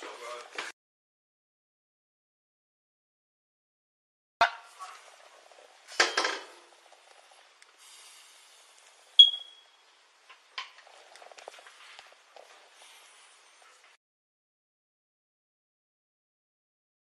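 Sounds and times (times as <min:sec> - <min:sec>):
sharp metallic ping: 0:09.2 - 0:09.6.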